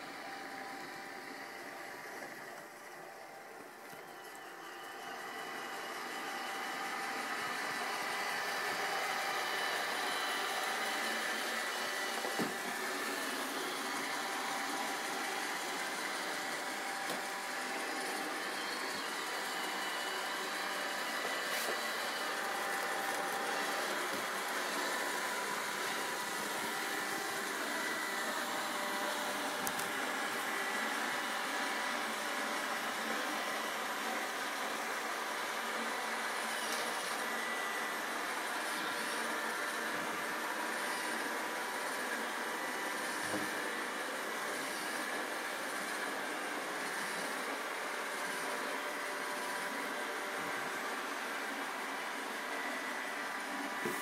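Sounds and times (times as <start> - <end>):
robot vacuum whirring: 0.0 - 54.0.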